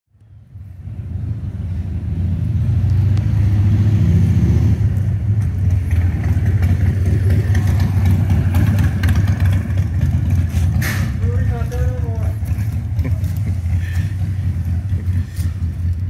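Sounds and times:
motorcycle engine idling: 5.4 - 16.0.

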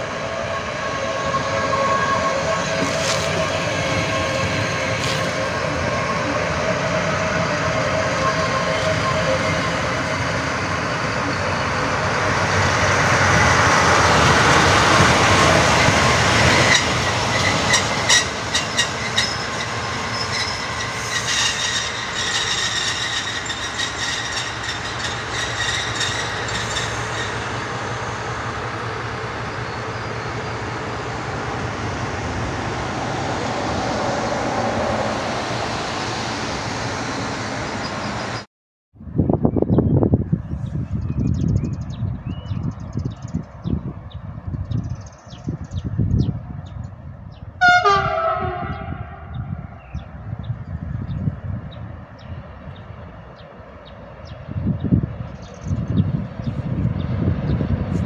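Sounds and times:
train rolling past: 0.0 - 38.5, 42.0 - 58.0
wheels clicking over rail joints: 13.9 - 28.9.

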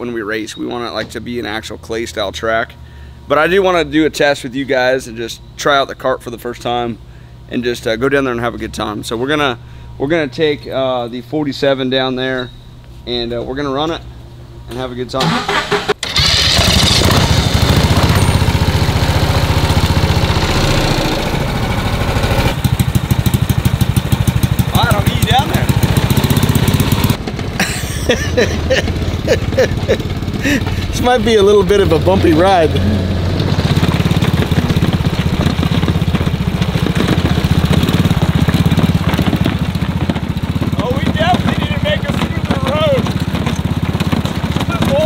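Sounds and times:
small engine idling: 15.3 - 45.0.

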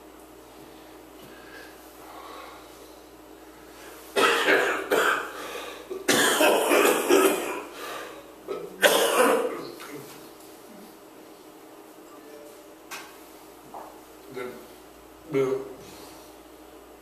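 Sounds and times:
man coughing: 4.2 - 7.8, 8.5 - 10.1.

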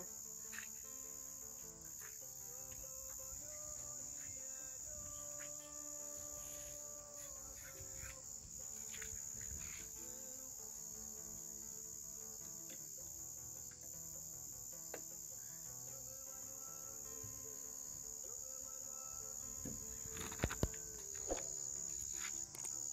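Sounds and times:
crickets chirring: 0.0 - 22.9.

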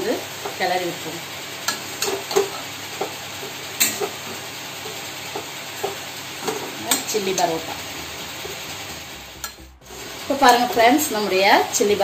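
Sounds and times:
bread frying with a sizzle: 0.0 - 12.0
metal spatula scraping a pan: 1.7 - 11.2.

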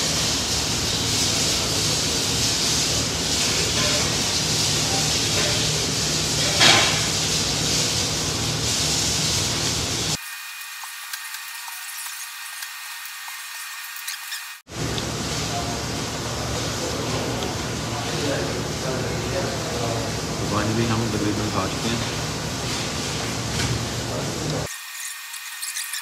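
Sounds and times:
ventilation hiss: 0.0 - 10.2, 14.7 - 24.7.

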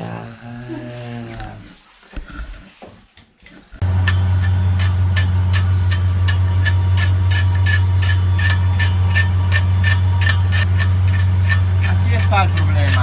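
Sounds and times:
driveline humming: 3.8 - 13.0.

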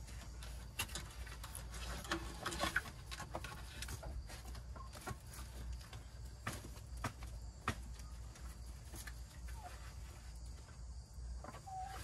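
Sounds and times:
metal shovel scraping dirt: 0.0 - 4.0.

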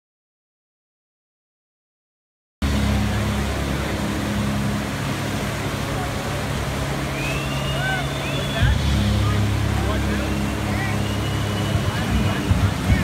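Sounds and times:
low steady hum: 2.6 - 13.0
whitewater rushing: 2.6 - 13.0.

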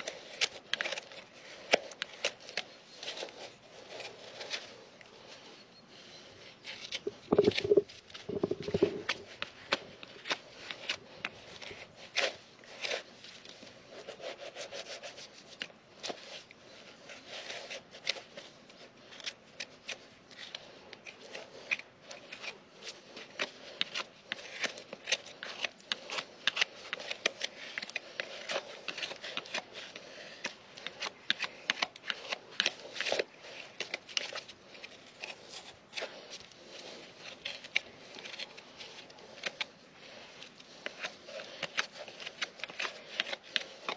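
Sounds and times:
hoof knife scraping hoof: 6.6 - 9.4.

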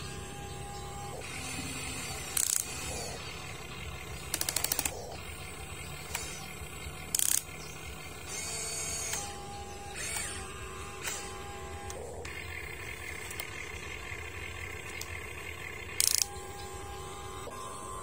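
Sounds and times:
short mechanical bursts: 0.0 - 18.0
toy excavator motors humming: 0.0 - 18.0
rapid rattle of clicks: 2.1 - 10.4, 11.0 - 16.8.

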